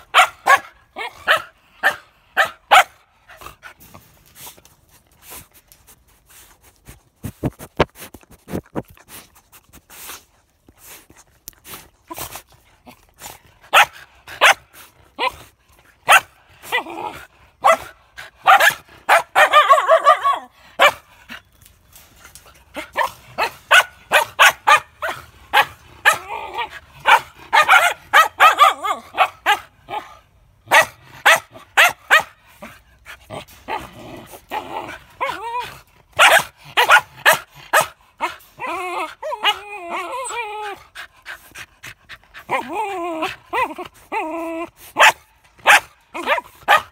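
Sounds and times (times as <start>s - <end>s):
dogs barking and yipping: 0.0s - 4.2s, 12.1s - 21.5s, 22.2s - 46.9s.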